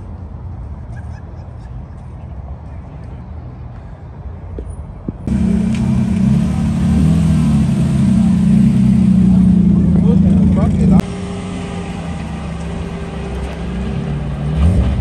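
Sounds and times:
low rumble of engines: 0:00.0 - 0:15.0
car engine idling: 0:05.3 - 0:14.4.

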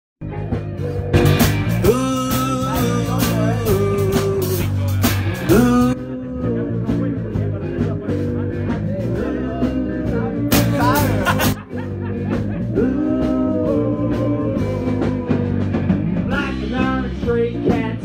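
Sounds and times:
live rock band playing: 0:00.2 - 0:18.0
sliding guitar lead line: 0:00.3 - 0:07.8.

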